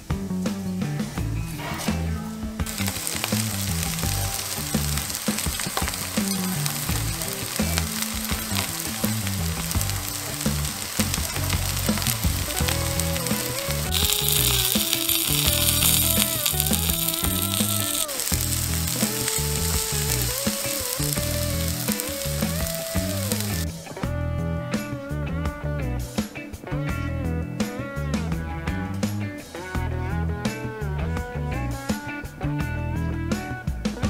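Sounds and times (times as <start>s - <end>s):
food sizzling in a pan: 2.0s - 23.7s.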